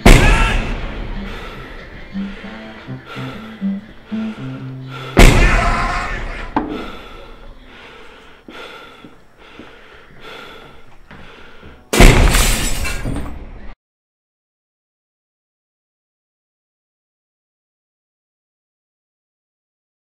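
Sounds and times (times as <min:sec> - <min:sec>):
sharp knock: 0:00.0 - 0:00.8, 0:05.2 - 0:05.7
loud sudden crashes: 0:00.0 - 0:01.6, 0:05.2 - 0:06.9, 0:12.0 - 0:13.2.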